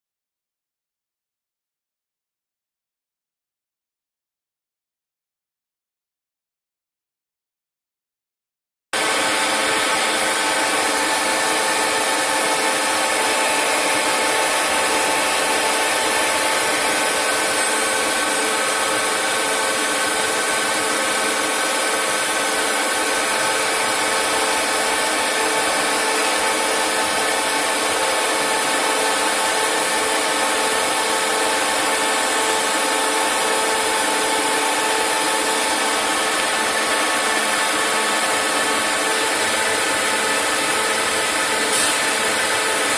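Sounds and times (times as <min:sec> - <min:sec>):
lathe cutting metal hiss: 0:09.0 - 0:42.9
machine whining tones: 0:09.0 - 0:42.9.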